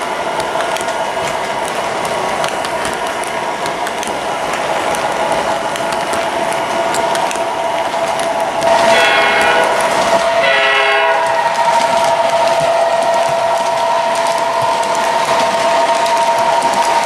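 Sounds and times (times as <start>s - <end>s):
model train hum and whine: 0.0s - 17.0s
wheels clicking over track: 0.0s - 17.0s
model locomotive horn: 8.7s - 14.9s.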